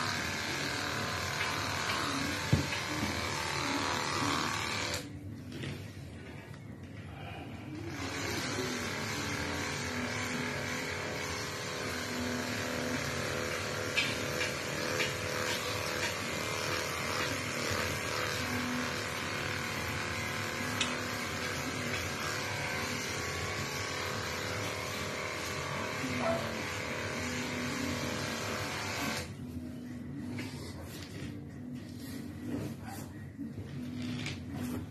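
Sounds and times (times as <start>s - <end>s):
electric grooming clipper whirring: 0.0s - 5.7s, 7.8s - 29.4s.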